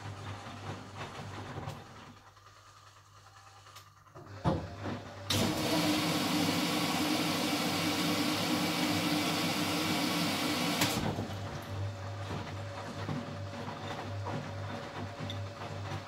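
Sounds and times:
water running into machine: 4.4s - 16.0s.

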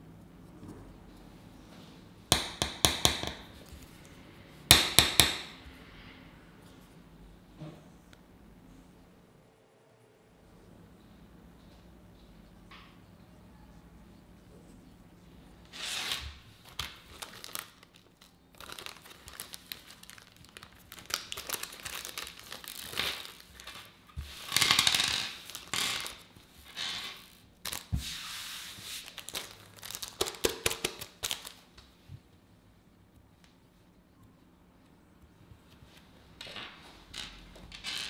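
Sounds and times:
plastic bag crinkling: 16.6s - 26.3s, 29.0s - 31.7s.

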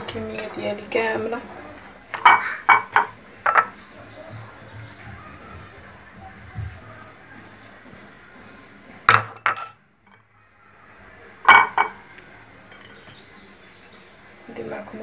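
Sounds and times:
faint steady hiss: 0.0s - 15.0s
spoon clinking on ceramic plate: 9.1s - 9.8s.

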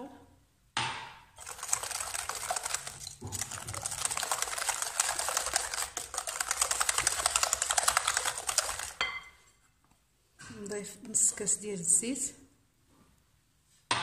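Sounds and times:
whisk clicking against glass bowl: 1.4s - 9.4s.

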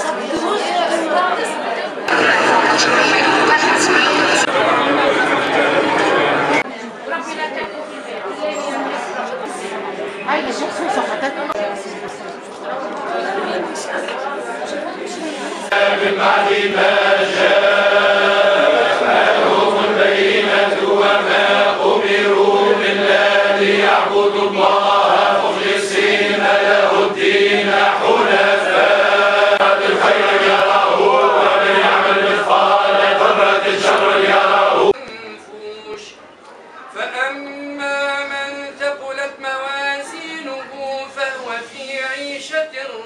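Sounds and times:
men chanting in unison: 15.7s - 35.0s.

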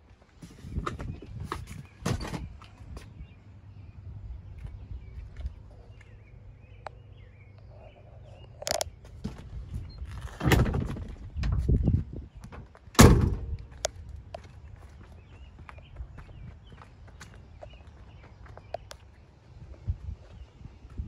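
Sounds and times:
car door thunk: 13.0s - 13.5s.

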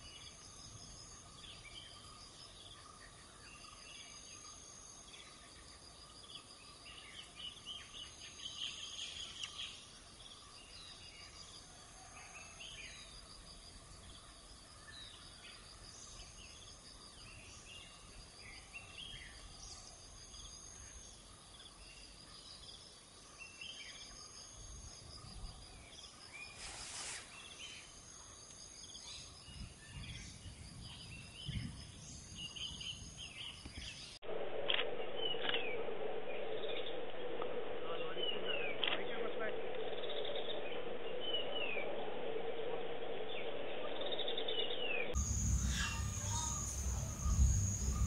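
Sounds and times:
low hum: 34.2s - 48.0s
birds chirping: 43.2s - 48.0s
high insect drone: 45.2s - 48.0s.

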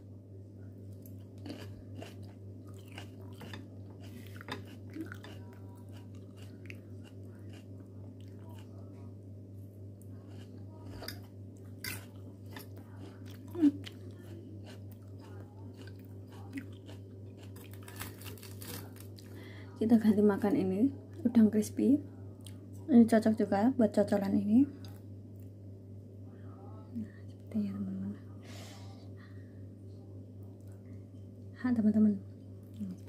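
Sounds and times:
steady low hum: 0.0s - 33.0s
person chewing crunchy salad: 0.9s - 8.9s, 10.0s - 19.3s.

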